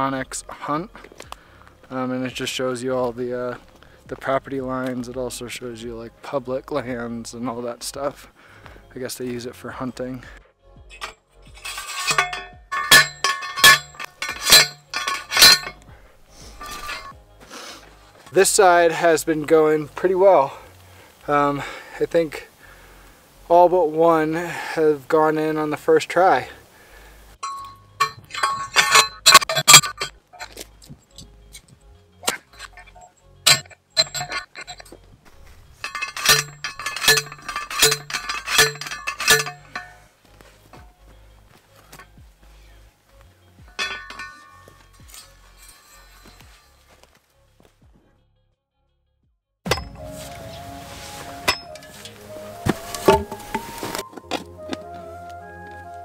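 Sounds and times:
post driver clanking on metal post: 10.9 - 15.8, 16.6 - 17.1, 27.4 - 30.6, 32.2 - 35.0, 35.8 - 40.0, 43.7 - 46.4, 51.4 - 54.4.

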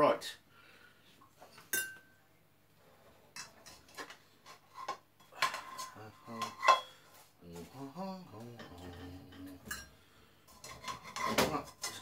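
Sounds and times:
frying pan and utensils clattering: 3.3 - 7.0, 8.6 - 12.0.

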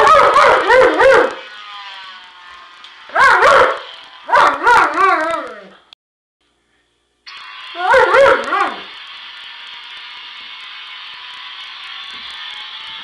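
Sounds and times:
dog howling and barking: 0.0 - 1.4, 3.1 - 5.8, 7.8 - 8.9.

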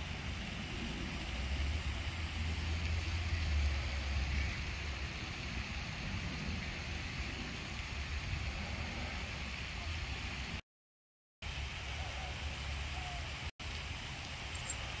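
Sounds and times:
low outdoor rumble: 0.0 - 10.6.

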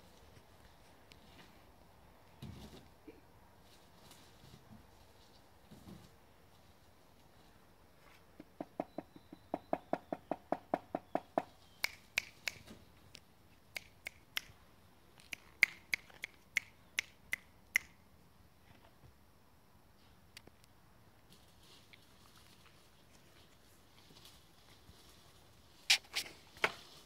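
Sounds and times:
finger snapping: 11.8 - 14.6, 15.2 - 18.0
person making clicks: 11.8 - 14.6, 15.2 - 18.0.

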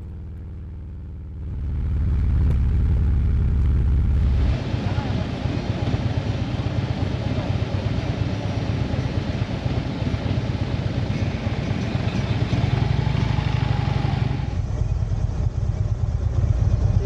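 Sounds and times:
motorcycle engine running: 0.0 - 17.0
wind and road noise: 0.0 - 17.0.

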